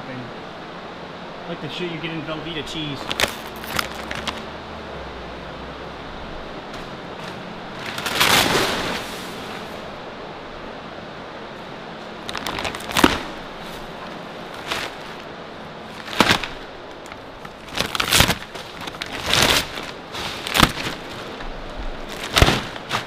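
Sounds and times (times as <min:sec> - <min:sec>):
foil crinkling and crackling: 0:03.0 - 0:04.4, 0:07.2 - 0:09.7, 0:12.2 - 0:23.0.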